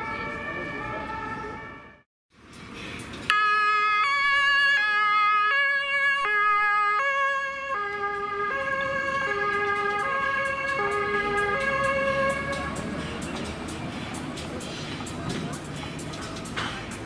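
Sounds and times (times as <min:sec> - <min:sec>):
two-tone ambulance siren: 0:00.0 - 0:02.1, 0:03.3 - 0:12.9.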